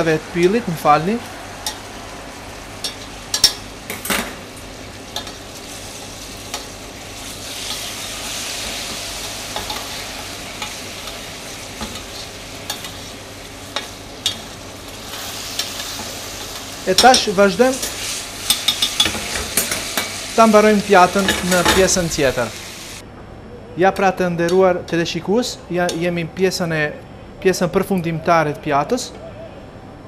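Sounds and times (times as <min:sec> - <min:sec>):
sauce sizzling in a saucepan: 0:00.0 - 0:23.0.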